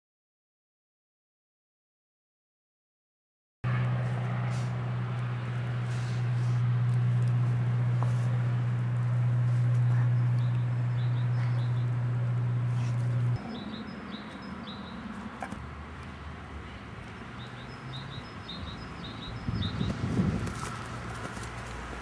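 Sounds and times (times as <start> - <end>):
steady low hum: 3.7 - 17.4
small birds chirping: 5.4 - 21.7.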